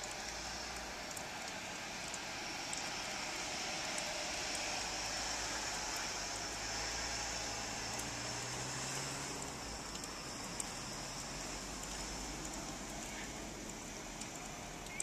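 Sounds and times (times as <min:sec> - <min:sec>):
car driving past on snow: 0:06.5 - 0:10.0.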